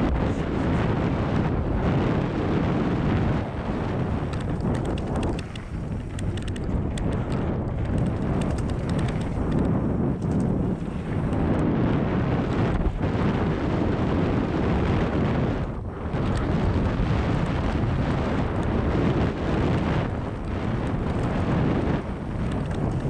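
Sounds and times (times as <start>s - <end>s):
wind rushing over microphone: 0.0s - 23.0s
light clicks: 4.3s - 10.6s.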